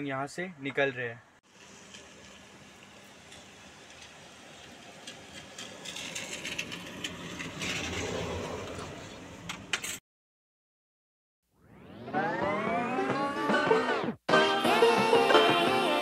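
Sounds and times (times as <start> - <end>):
rattles and sharp clicks: 5.0 - 8.9
music: 12.0 - 16.0.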